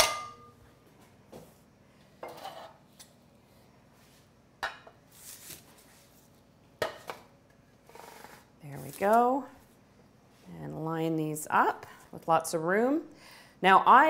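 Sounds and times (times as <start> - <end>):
parchment paper rustling: 5.1 - 6.4.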